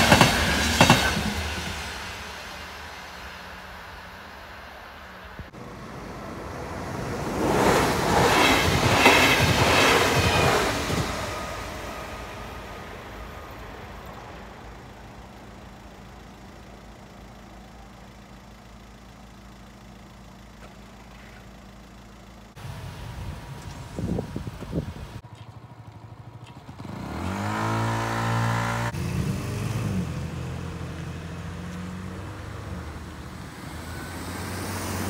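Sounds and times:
train passing: 0:00.0 - 0:18.1, 0:22.5 - 0:35.0.

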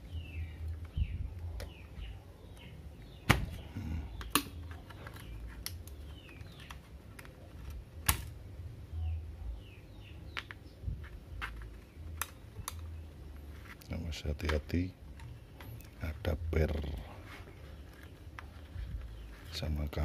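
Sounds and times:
sharp plastic cracks: 0:03.2 - 0:03.6, 0:04.2 - 0:08.4, 0:11.4 - 0:13.0
hard plastic clicks and snaps: 0:04.2 - 0:07.4, 0:12.1 - 0:13.0.

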